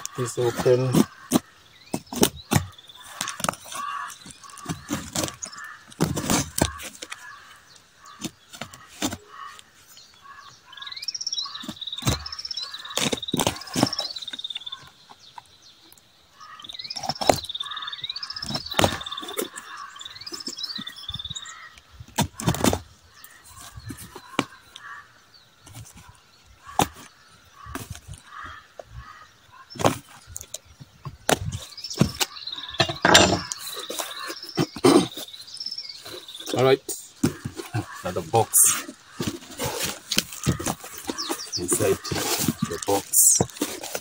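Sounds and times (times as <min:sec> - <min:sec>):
bird singing: 0:00.0 - 0:44.0.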